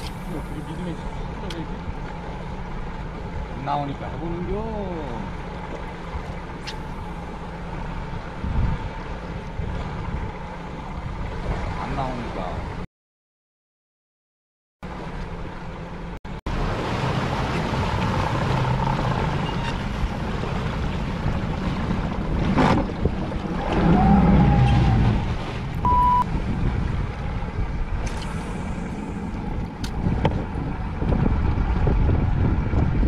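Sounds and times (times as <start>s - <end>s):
boat engine running: 0.0s - 12.8s, 14.8s - 33.0s
water noise: 0.0s - 12.9s, 14.8s - 33.0s
wind: 0.0s - 12.9s, 14.8s - 33.0s
short beep: 25.8s - 26.3s.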